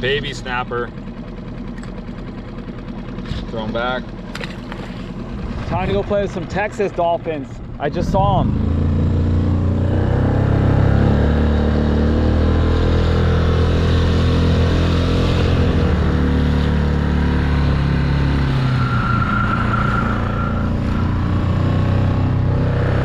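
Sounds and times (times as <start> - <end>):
small outboard motor running: 0.0 - 23.0.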